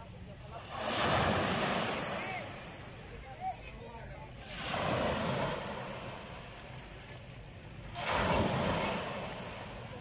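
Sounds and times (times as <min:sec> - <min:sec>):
small waves breaking on beach: 0:00.0 - 0:10.0.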